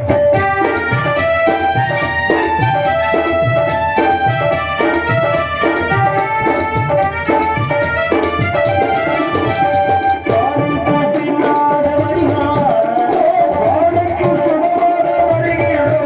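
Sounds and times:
electronic keyboard melody: 0.0s - 16.0s
tabla strokes: 0.0s - 16.0s
person singing: 9.0s - 16.0s.

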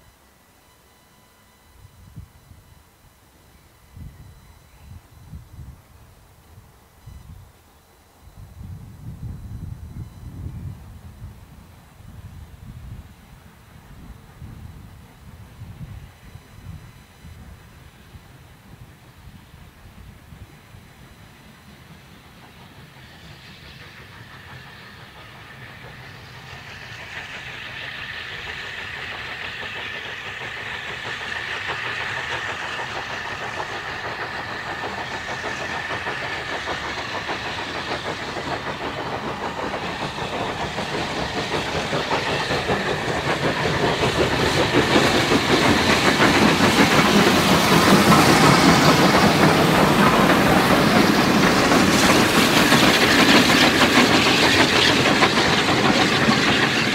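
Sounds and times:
steam train passing: 0.0s - 56.9s
steam hiss: 2.0s - 56.9s
wheels rattling on rail: 21.0s - 56.9s.

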